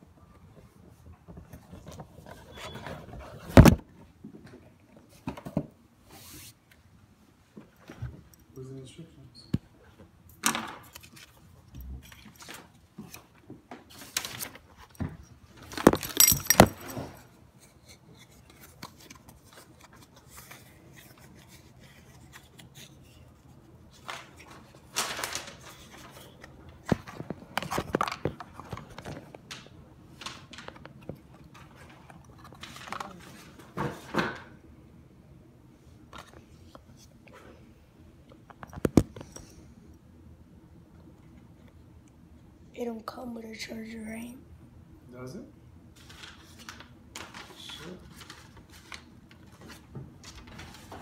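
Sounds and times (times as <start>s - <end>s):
rummaging rustles: 12.0s - 23.0s, 23.9s - 34.3s
handling clicks and clinks: 15.7s - 17.2s.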